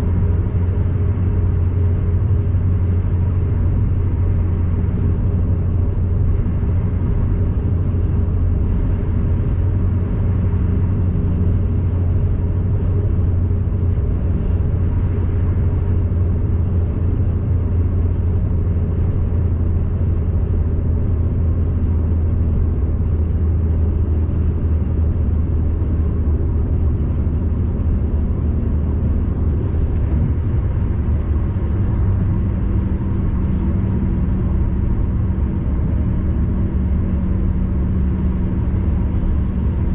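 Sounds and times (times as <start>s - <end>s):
car road and engine rumble: 0.0s - 39.9s.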